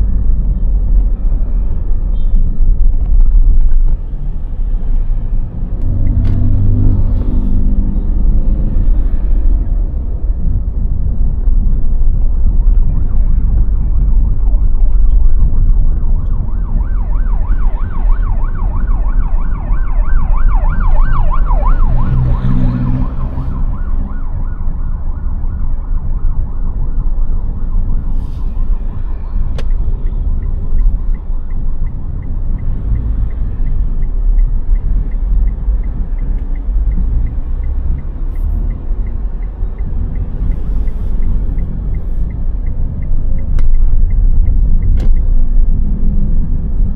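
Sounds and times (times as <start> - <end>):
street traffic rumbling: 0.0 - 46.9
siren warbling: 14.6 - 26.0.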